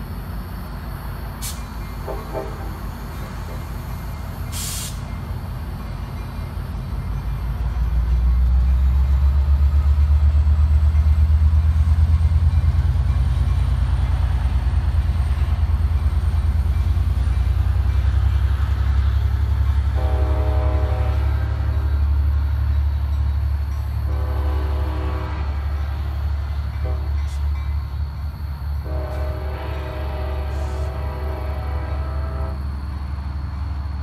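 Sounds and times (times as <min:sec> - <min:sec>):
diesel locomotive engine accelerating: 0:00.0 - 0:34.0
sharp hiss of air: 0:01.4 - 0:01.8, 0:04.5 - 0:05.1.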